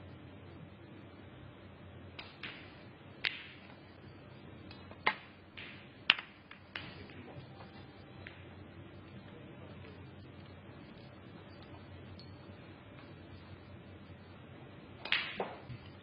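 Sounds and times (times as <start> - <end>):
snooker balls clicking: 2.2 - 3.8, 4.7 - 8.5, 15.0 - 16.0.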